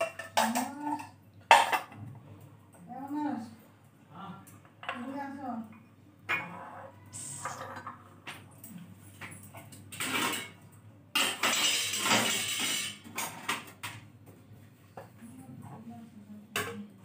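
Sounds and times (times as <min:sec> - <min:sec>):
dishes and utensils clattering: 0:00.0 - 0:02.0, 0:06.3 - 0:14.0.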